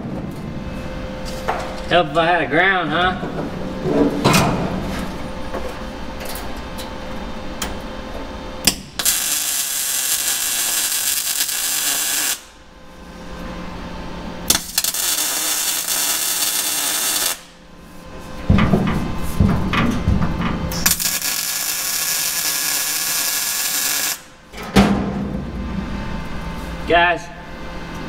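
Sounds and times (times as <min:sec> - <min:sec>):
welding arc crackle: 0:08.7 - 0:12.6, 0:14.5 - 0:17.6, 0:20.8 - 0:24.4.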